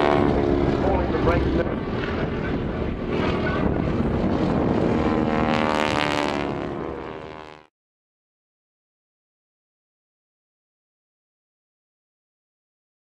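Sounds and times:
biplane engine droning overhead: 0.0s - 7.7s.

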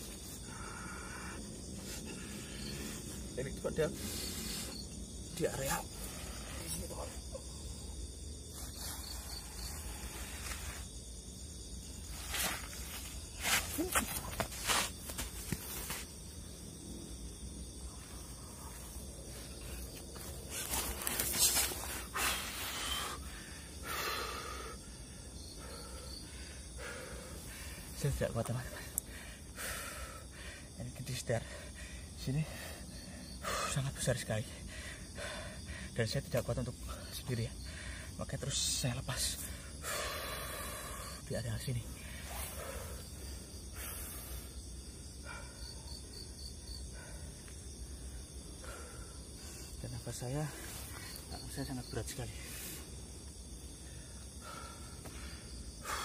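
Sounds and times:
insects chirring: 0.0s - 56.0s
man breathing heavily: 0.1s - 6.6s, 17.7s - 28.0s, 28.7s - 30.8s, 31.4s - 33.8s, 34.4s - 36.0s, 37.5s - 38.2s, 39.4s - 49.8s, 52.4s - 56.0s.

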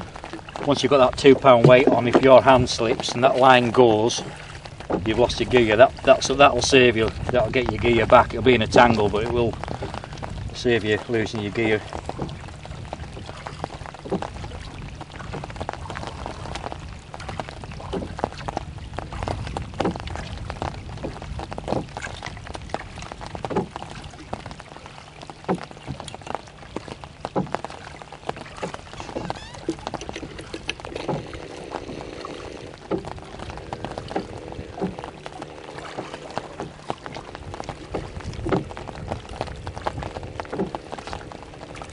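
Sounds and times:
water lapping against boat hull: 0.0s - 41.9s
low steady rumble: 25.8s - 41.9s.

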